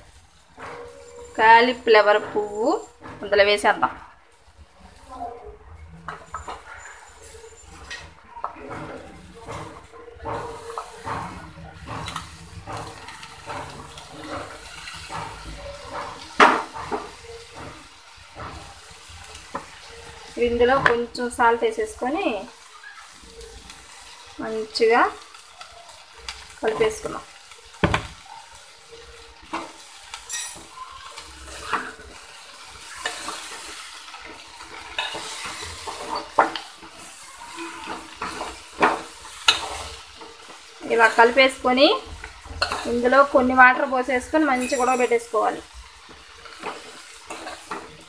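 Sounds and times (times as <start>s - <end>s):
masala sizzling: 0.0s - 48.0s
metal spoon scraping pan: 6.1s - 17.8s, 28.9s - 48.0s
vegetables rustling into pot: 6.2s - 48.0s.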